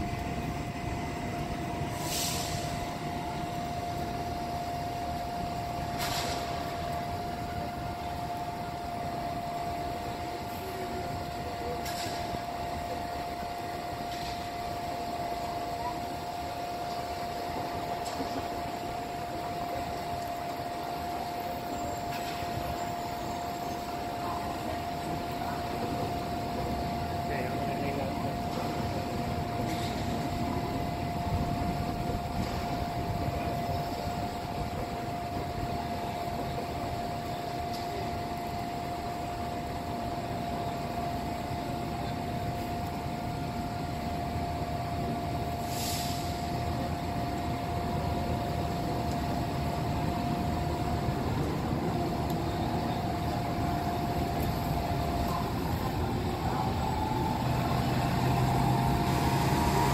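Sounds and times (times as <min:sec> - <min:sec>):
steady high whine: 0:00.0 - 0:59.9
traffic rumble: 0:00.0 - 0:59.9
brief hiss: 0:01.9 - 0:02.7, 0:45.6 - 0:46.5.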